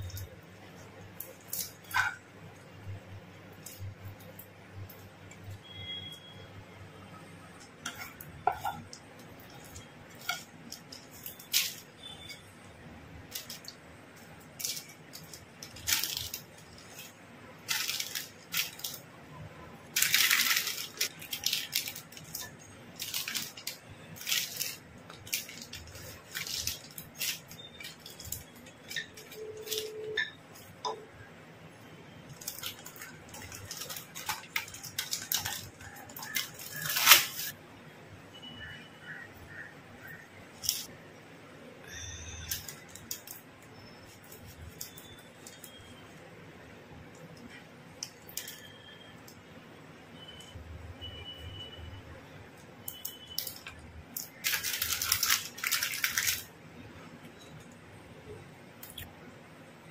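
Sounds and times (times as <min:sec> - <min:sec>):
baking paper rustling: 0:00.0 - 0:06.1, 0:07.4 - 0:12.5, 0:13.2 - 0:19.1, 0:19.8 - 0:30.8, 0:32.2 - 0:37.6, 0:53.3 - 0:56.6.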